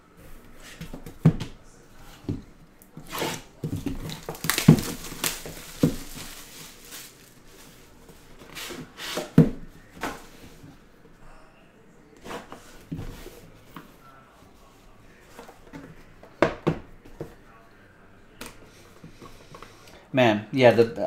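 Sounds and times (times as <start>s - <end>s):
plastic wrap crinkling and tearing: 3.1s - 8.0s.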